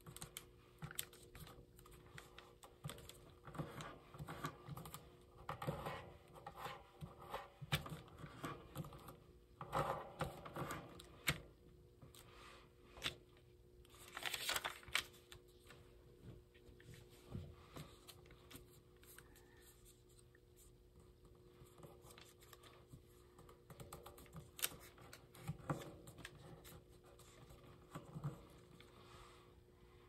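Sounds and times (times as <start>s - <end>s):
paper rustling: 13.8s - 20.7s, 24.0s - 28.9s.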